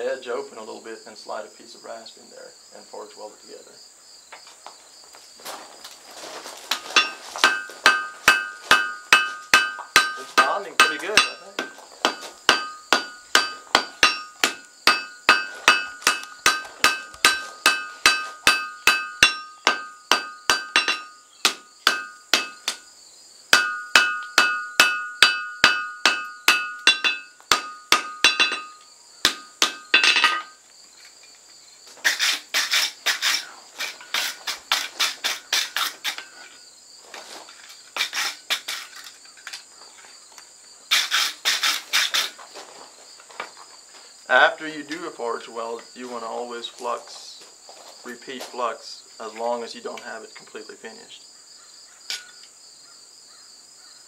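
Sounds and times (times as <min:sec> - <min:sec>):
anvil ringing: 0:07.0 - 0:22.8, 0:23.5 - 0:30.6
hammer striking hot metal on anvil: 0:07.0 - 0:22.8, 0:23.5 - 0:30.6.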